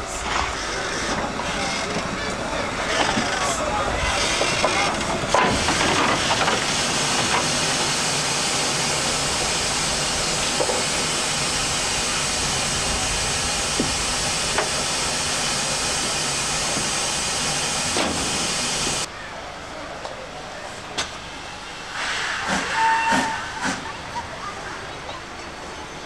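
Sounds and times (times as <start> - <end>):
steam hissing: 4.0 - 19.1, 21.7 - 24.0.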